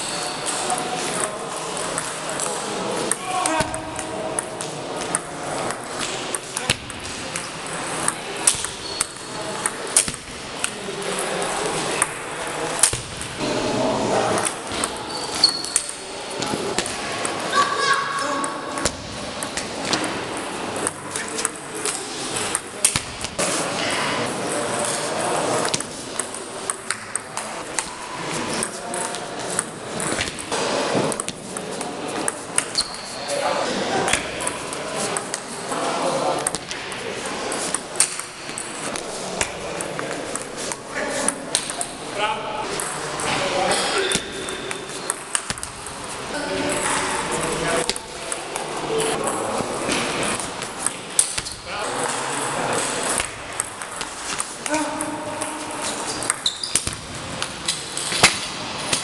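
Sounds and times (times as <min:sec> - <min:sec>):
murmur of voices: 0:00.0 - 0:59.0
sports hall background noise: 0:00.0 - 0:59.0
table tennis ball clicking: 0:03.9 - 0:10.8, 0:56.2 - 0:57.5.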